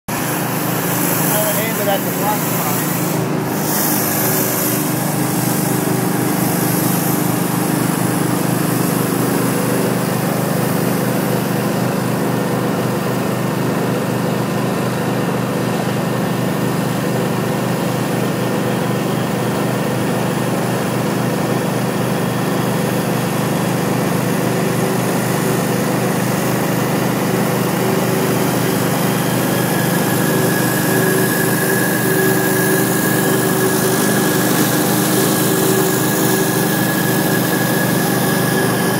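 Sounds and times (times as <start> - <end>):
water spraying onto concrete: 0.1 - 12.2, 26.3 - 38.9
pressure washer engine running: 0.1 - 38.9.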